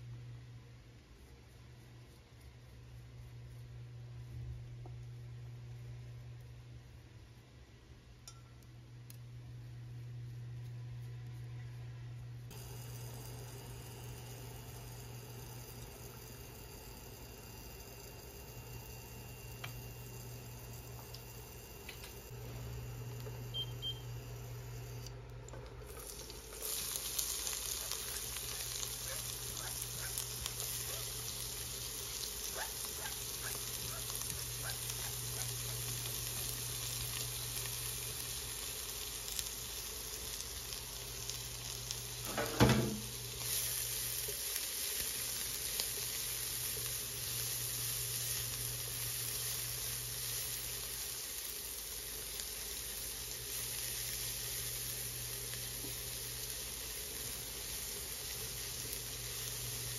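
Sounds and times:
steady low hum: 0.0s - 50.9s
onion and garlic sizzling in oil: 12.4s - 59.9s.

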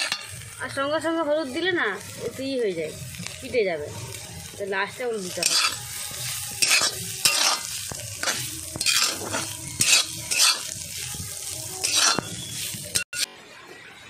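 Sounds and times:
frying sizzle: 0.0s - 13.3s
metal spatula scraping pan: 5.2s - 11.2s, 11.8s - 13.3s.

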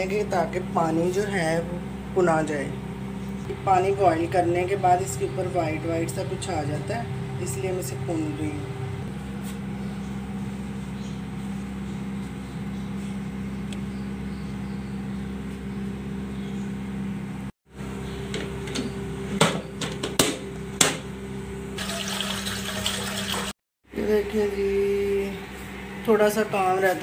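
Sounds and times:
electric motor hum: 0.0s - 19.8s.

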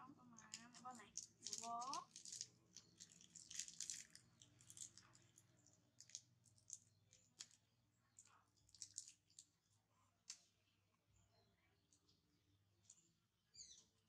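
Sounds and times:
monkey eating mouth sounds: 0.4s - 7.6s
plastic wrapper crackling: 0.4s - 7.6s, 8.2s - 9.5s.

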